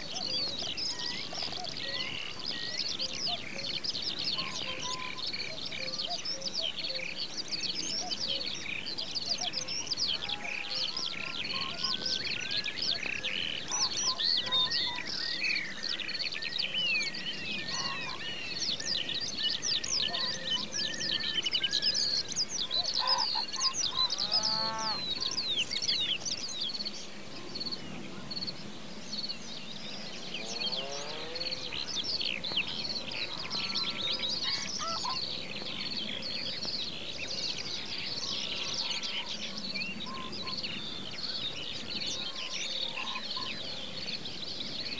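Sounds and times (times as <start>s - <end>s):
songbirds singing and chirping: 0.0s - 44.9s.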